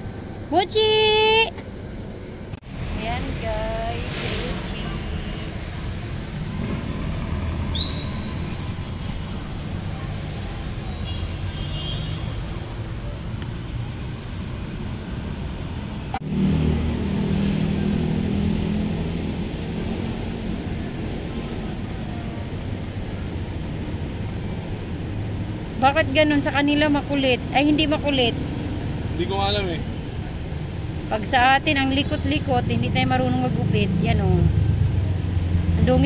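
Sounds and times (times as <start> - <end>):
low rumble of road traffic: 0.0 - 36.0
high whistling tone: 7.7 - 10.3.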